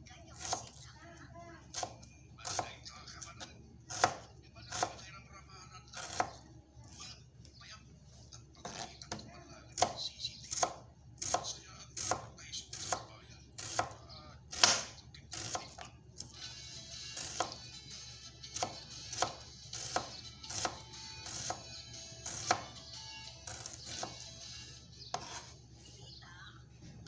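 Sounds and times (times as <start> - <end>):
knife slicing onion on board: 0.4 - 0.8, 1.7 - 5.0, 6.0 - 7.0, 8.6 - 16.4, 17.2 - 17.7, 18.5 - 22.8, 23.4 - 24.4, 25.1 - 25.6.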